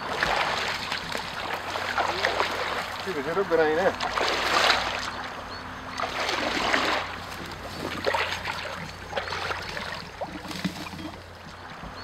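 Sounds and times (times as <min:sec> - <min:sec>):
water splashing and sloshing: 0:00.0 - 0:12.0
dry reeds rustling: 0:06.2 - 0:11.2.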